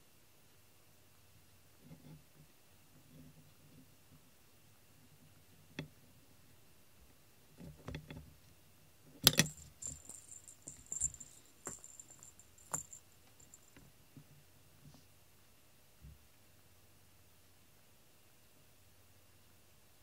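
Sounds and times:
small bell jingling: 9.4 - 13.8.

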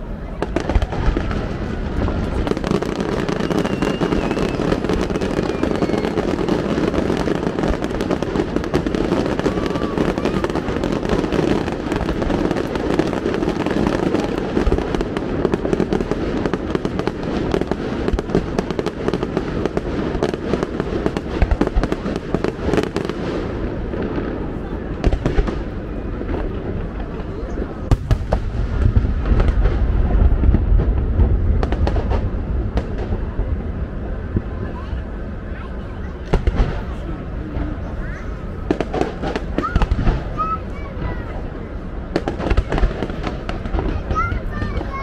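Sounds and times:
fireworks crackling: 0.0 - 45.0
low firework thuds: 0.3 - 34.6.

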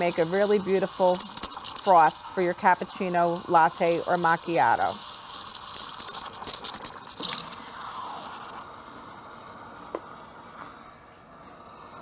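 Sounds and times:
steam wand frothing milk: 0.0 - 12.0.

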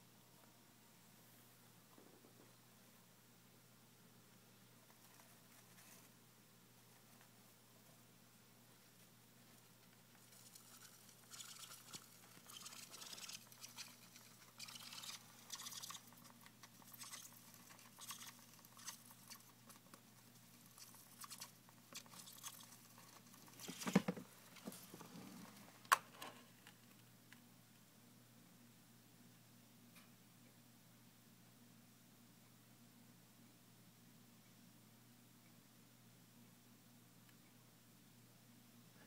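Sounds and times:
hamster scratching and rustling: 4.8 - 6.2, 8.9 - 25.5.

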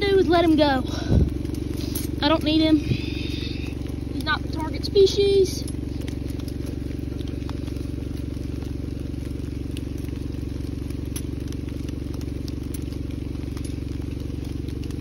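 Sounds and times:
engine idling: 0.0 - 15.0
faint ticks: 5.6 - 15.0.

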